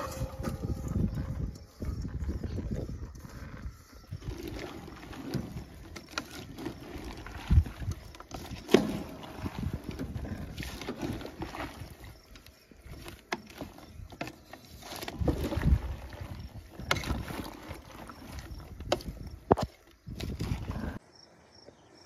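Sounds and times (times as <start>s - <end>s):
wooden spoon knocking and scraping pot: 0.0s - 11.9s.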